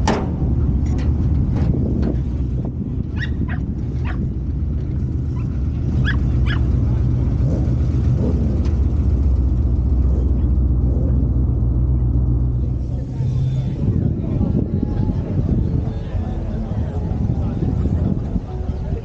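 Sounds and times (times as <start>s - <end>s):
low engine rumble: 0.0s - 19.0s
dog yipping: 3.2s - 4.2s, 5.4s - 6.7s.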